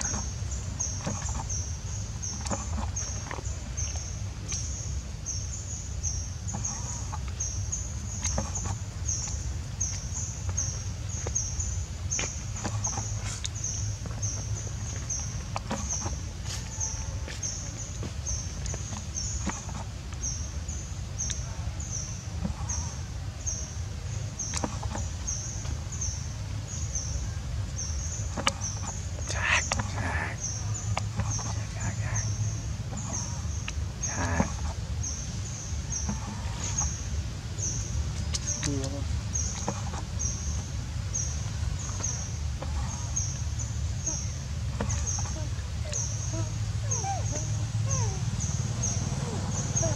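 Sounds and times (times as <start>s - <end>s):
steady low rumble: 0.0s - 49.9s.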